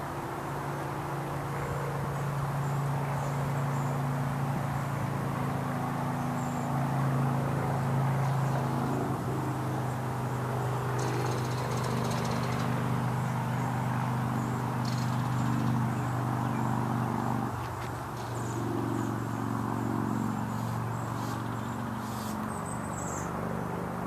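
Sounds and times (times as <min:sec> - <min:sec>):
distant motor hum: 0:00.0 - 0:24.0
faint bird chirps: 0:10.6 - 0:17.3.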